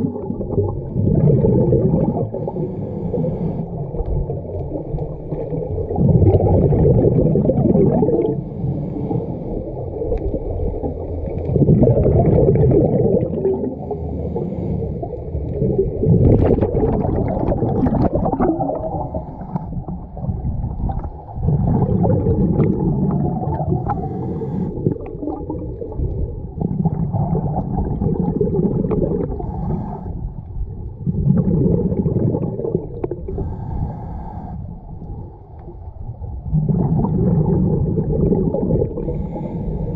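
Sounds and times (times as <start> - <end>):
exhaled bubbles underwater: 0.0 - 39.9
regulator inhalations: 2.4 - 3.8, 8.4 - 9.7, 13.8 - 15.4, 18.8 - 19.8, 23.8 - 25.0, 29.4 - 30.3, 33.3 - 34.9, 39.0 - 39.9.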